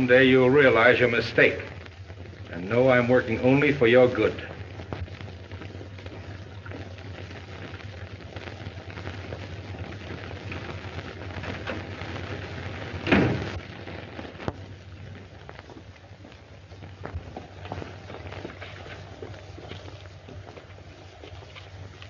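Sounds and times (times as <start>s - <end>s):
crackling surface noise: 0.0s - 22.0s
steady low hum: 0.0s - 22.0s
loud thump: 13.0s - 13.6s.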